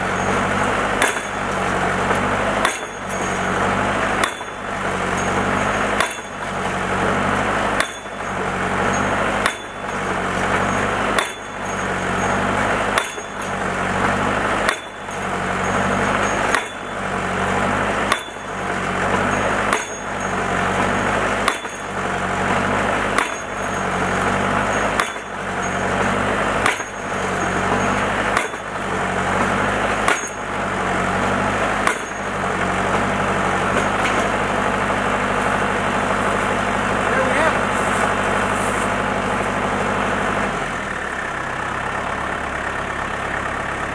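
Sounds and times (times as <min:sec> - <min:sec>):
post driver weight striking post: 0:00.0 - 0:34.6
engine running: 0:00.0 - 0:43.9.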